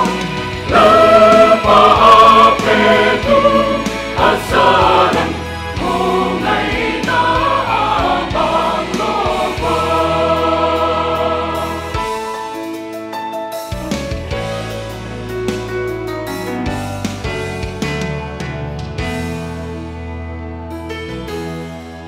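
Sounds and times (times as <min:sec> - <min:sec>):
choir singing in harmony: 0:00.0 - 0:12.9.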